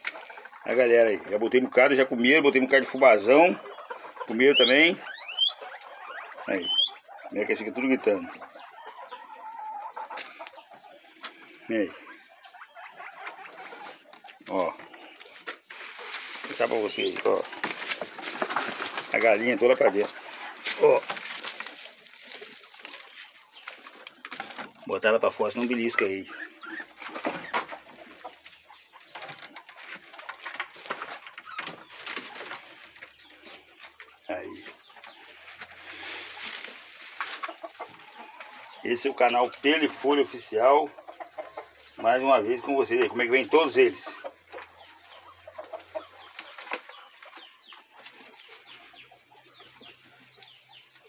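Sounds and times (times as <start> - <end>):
chickens clucking: 0.0 - 51.0
rustling: 10.2 - 26.1, 26.7 - 51.0.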